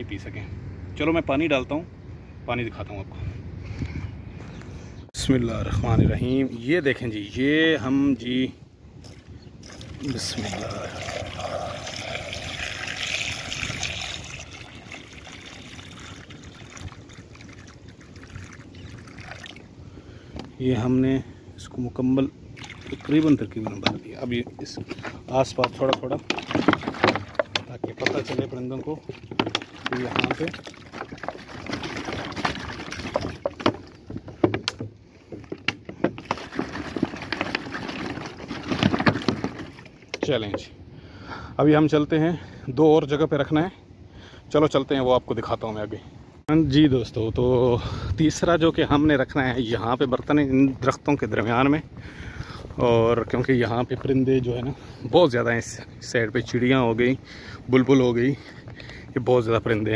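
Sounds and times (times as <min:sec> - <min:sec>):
water pouring onto stones: 0:09.6 - 0:19.7, 0:22.6 - 0:23.9, 0:26.3 - 0:33.7.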